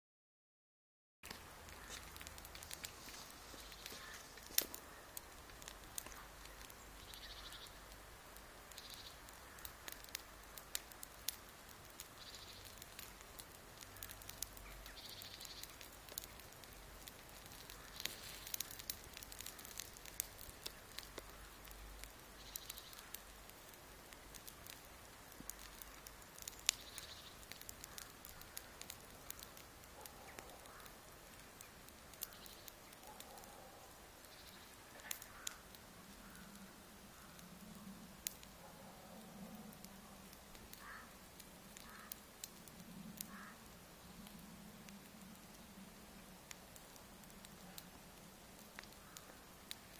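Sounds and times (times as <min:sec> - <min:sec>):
woodpecker tapping on bark: 0:34.3 - 0:35.6, 0:40.8 - 0:41.0, 0:41.8 - 0:42.1.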